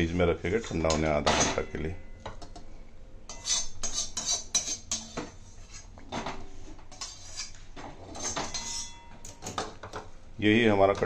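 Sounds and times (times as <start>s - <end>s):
metal spoon scraping steel pan: 3.3s - 5.9s, 6.9s - 9.1s.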